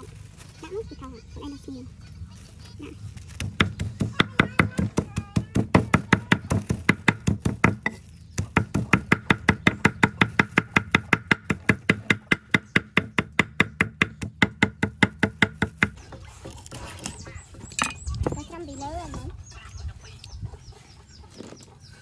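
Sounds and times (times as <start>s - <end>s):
cleaver chopping on wooden block: 3.4s - 16.0s.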